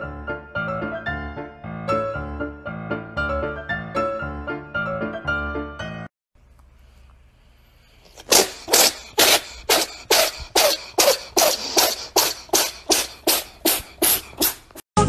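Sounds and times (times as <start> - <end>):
woman coughing: 8.3 - 13.4.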